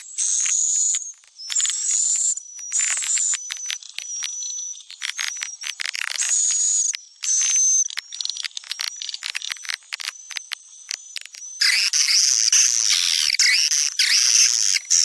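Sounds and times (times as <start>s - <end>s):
buzzy bird chirps and clicks: 0.0s - 15.0s.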